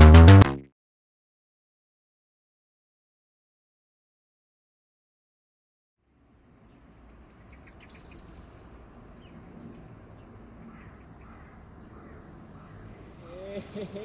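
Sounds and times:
bird calls: 6.4s - 14.0s.

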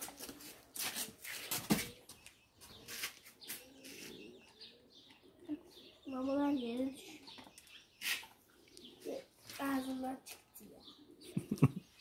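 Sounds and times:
pigeons cooing: 2.9s - 7.4s, 8.0s - 12.0s.

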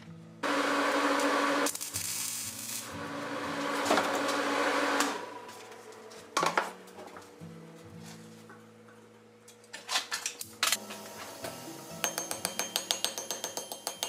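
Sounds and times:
welding arc crackling and hissing: 0.5s - 4.9s.

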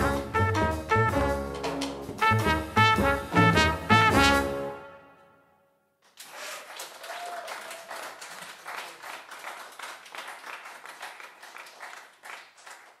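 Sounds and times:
audience applauding: 6.0s - 13.0s.

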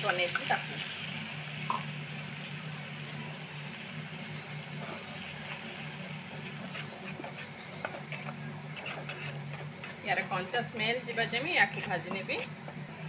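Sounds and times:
paste sizzling in hot oil: 0.0s - 12.0s
spatula scraping pan: 4.8s - 12.6s.

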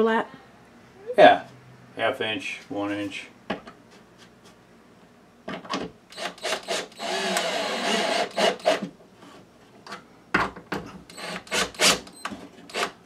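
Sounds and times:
cordless drill motor: 6.1s - 8.8s, 11.1s - 12.1s, 12.7s - 13.0s.

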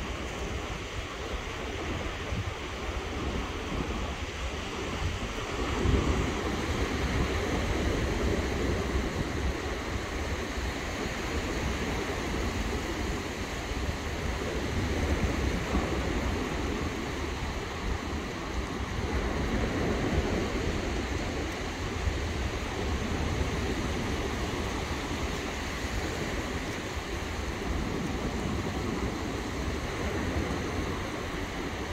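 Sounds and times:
ocean surf washing on shore: 0.0s - 31.9s
wind buffeting microphone: 0.0s - 31.9s.

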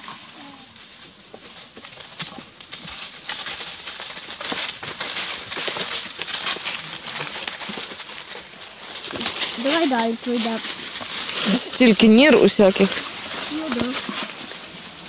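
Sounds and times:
hooves crunching through dry leaves: 0.0s - 15.0s.

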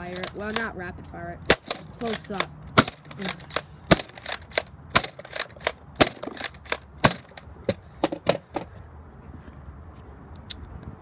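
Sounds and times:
toy blaster snapping clicks: 0.0s - 0.7s, 1.4s - 7.5s.

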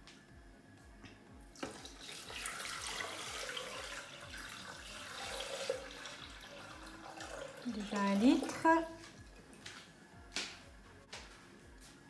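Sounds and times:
water pouring into metal bowl: 1.6s - 8.6s.

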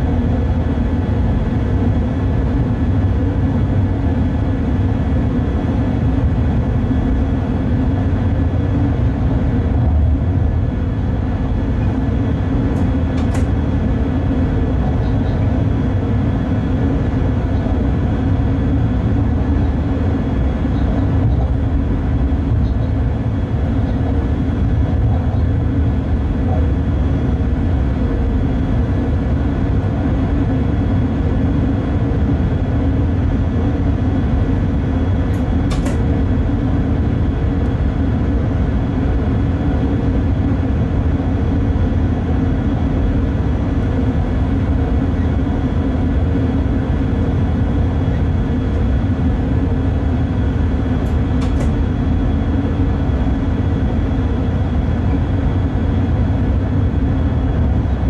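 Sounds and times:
locomotive low rumble on track: 0.0s - 58.0s
sharp click: 12.8s - 13.5s, 35.3s - 36.0s, 51.0s - 51.8s.

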